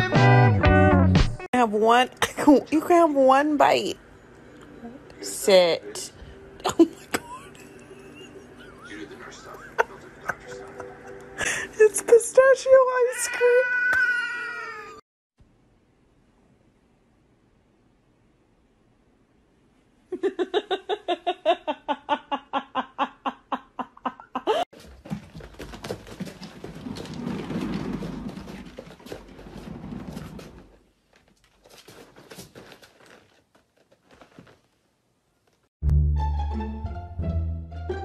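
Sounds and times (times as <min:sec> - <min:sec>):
exercise wheel rumbling: 0:24.7 - 0:34.8.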